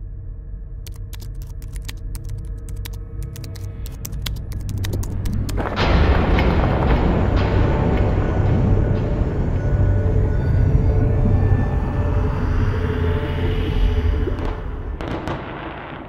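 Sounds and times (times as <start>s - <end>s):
crackling clicks: 0.9s - 5.9s
low rumbling drone: 3.0s - 15.9s.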